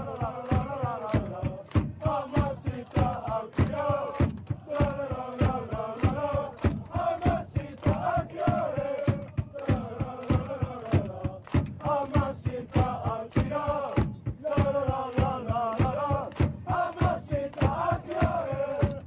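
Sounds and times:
sharp rhythmic drum beats: 0.0 - 19.0
supporters singing a chant: 0.0 - 19.0.

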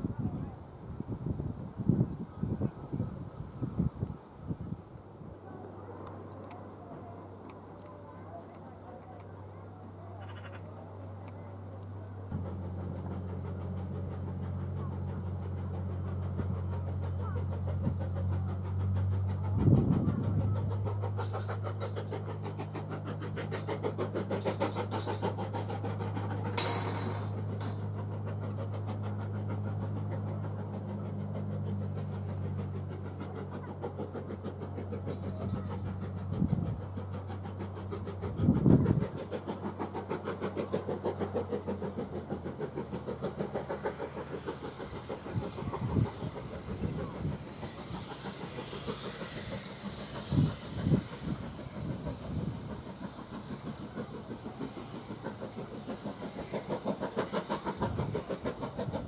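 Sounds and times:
engine humming: 5.3 - 59.0.

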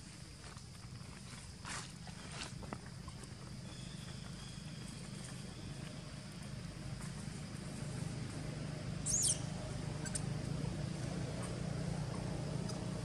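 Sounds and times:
steady low hum: 2.2 - 13.0
macaque squealing: 9.0 - 10.3.

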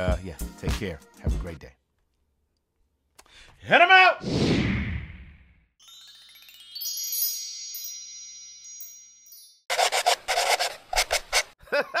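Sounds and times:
shimmering chime sweep: 5.8 - 9.7.

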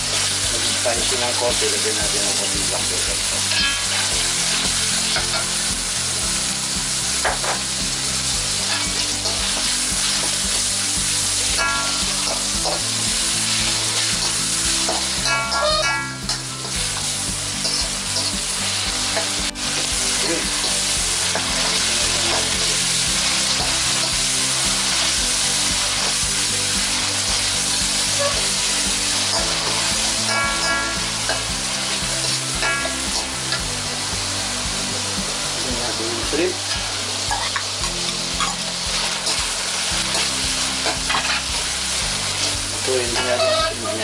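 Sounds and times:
food sizzling in hot oil: 0.0 - 44.0
metal spatula scraping pan: 43.2 - 44.0.

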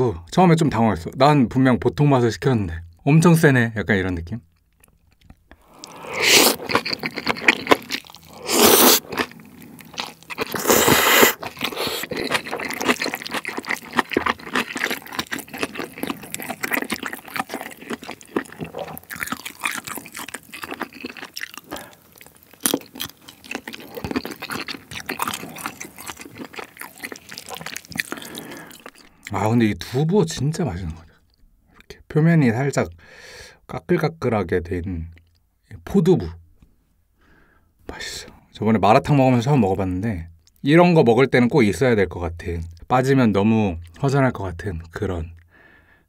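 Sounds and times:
crunchy chewing: 4.9 - 29.3
slurping noodles: 5.6 - 22.0.

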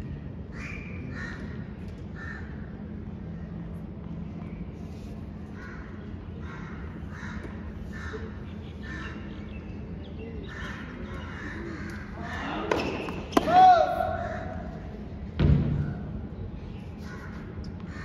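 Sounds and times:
steady low hum: 0.0 - 18.0
crows cawing: 5.6 - 9.2.

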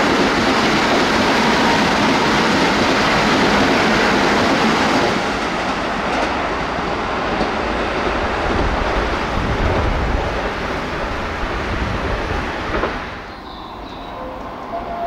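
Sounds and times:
electric train passing: 0.0 - 15.0.

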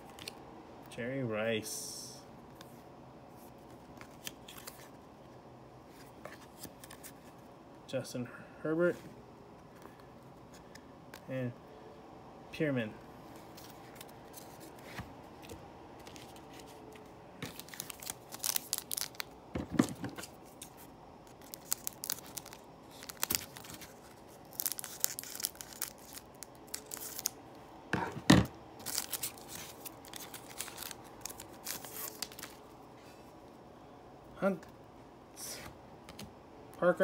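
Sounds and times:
cards rustling: 3.5 - 5.0, 13.3 - 27.4, 28.8 - 32.7
foil wrapper crinkling and tearing: 17.4 - 19.4, 20.2 - 27.4, 28.8 - 32.6.

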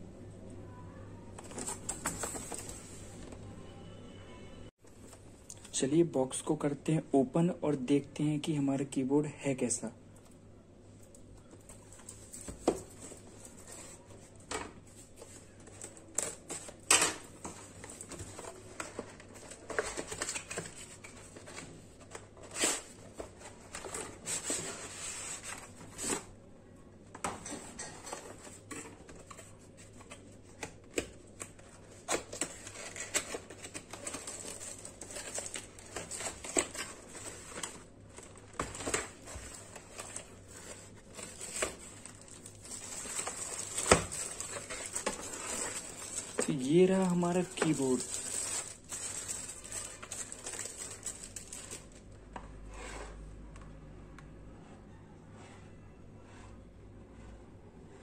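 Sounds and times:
plastic wrap crinkling: 31.2 - 52.1.

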